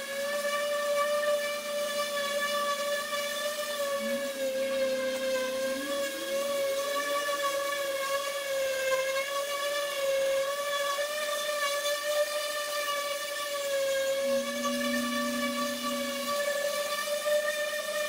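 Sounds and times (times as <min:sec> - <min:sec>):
orbital sander high whine: 0:00.0 - 0:18.0
low hum rising in pitch: 0:03.0 - 0:08.8, 0:13.4 - 0:17.5.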